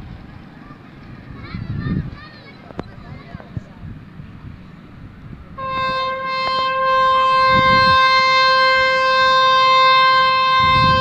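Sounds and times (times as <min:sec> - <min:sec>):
locomotive horn blast: 0:05.6 - 0:11.0.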